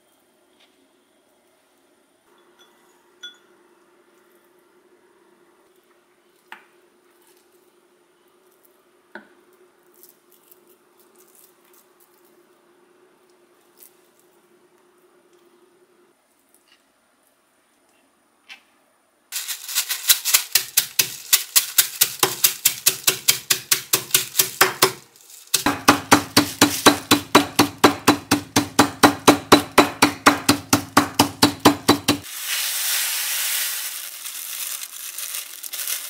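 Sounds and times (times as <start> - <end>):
mallet pounding crumbs in bag: 19.4 - 32.3.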